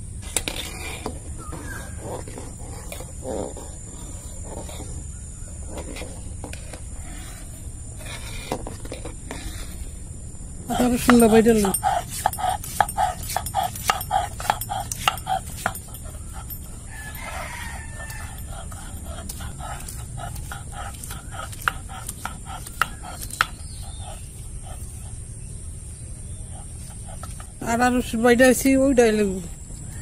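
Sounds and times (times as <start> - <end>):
knife chopping on wooden board: 11.0 - 15.8, 19.2 - 23.6
rooster crowing: 16.9 - 18.7.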